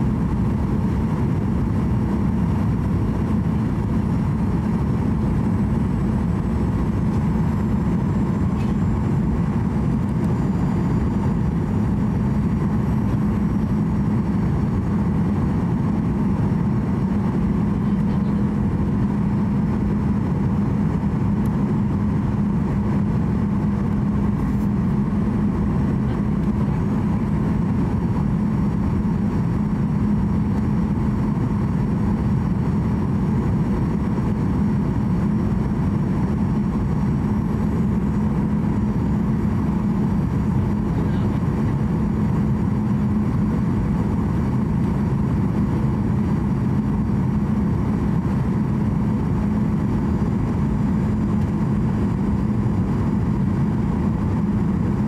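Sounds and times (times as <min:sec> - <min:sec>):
airflow over fuselage: 0:00.0 - 0:55.0
constant low hum: 0:00.0 - 0:55.0
jet engines roaring: 0:00.0 - 0:55.0.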